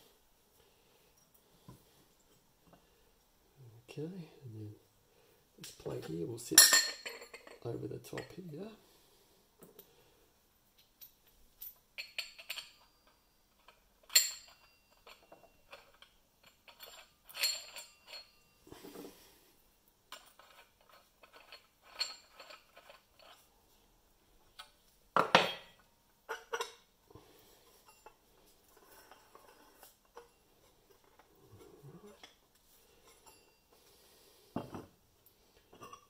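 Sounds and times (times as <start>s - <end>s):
steel parts clinking: 10.8s - 18.6s, 20.1s - 23.4s, 33.0s - 33.8s.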